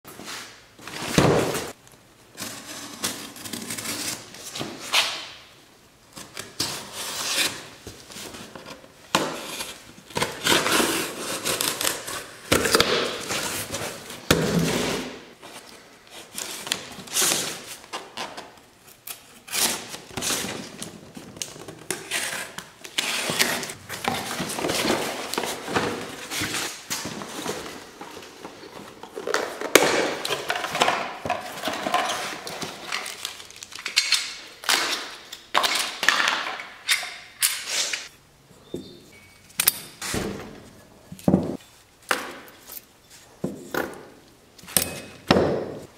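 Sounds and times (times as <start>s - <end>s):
packing tape slit with knife: 9.4s - 13.8s, 16.2s - 20.6s.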